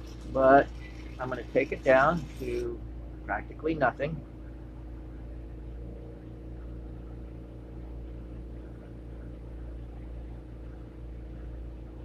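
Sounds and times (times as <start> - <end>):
bench torch burning with hiss: 0.0 - 2.8.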